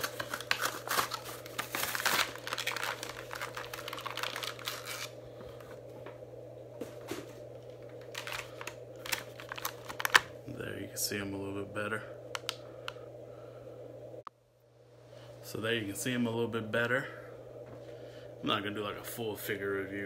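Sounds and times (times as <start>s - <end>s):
plastic packaging crinkling: 0.0s - 5.8s, 7.7s - 10.4s.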